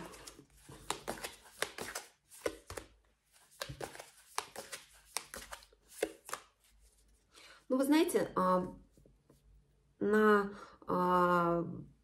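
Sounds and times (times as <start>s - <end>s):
cards shuffled and laid down: 0.0s - 7.1s.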